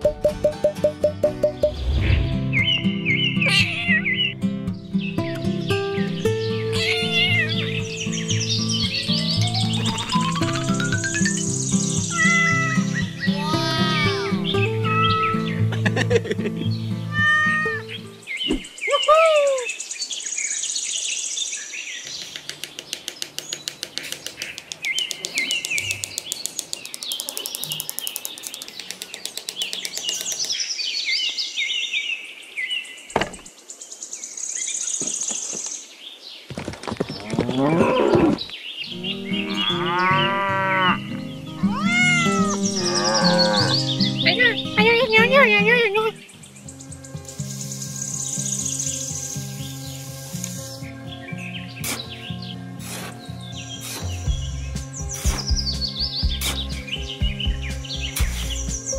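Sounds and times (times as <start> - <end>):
cat meowing: 6.8 - 7.6, 12.2 - 12.8, 17.1 - 17.9, 41.7 - 42.7
rapid high chirping and trilling: 6.8 - 13.2
cows mooing: 39.0 - 41.2, 42.2 - 43.9.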